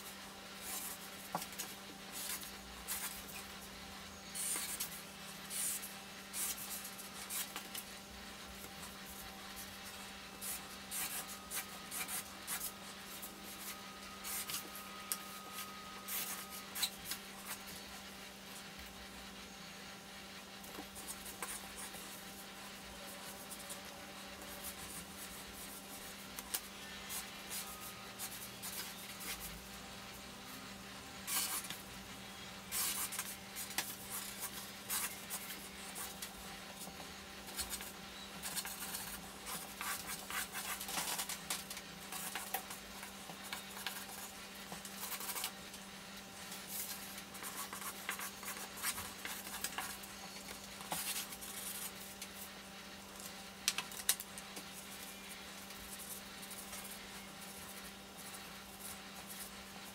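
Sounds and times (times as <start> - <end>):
steady low hum: 0.0 - 59.9
marker scratching on paper: 4.4 - 7.9, 8.8 - 14.8, 15.4 - 17.8, 31.3 - 31.8, 32.7 - 45.6, 46.5 - 52.5.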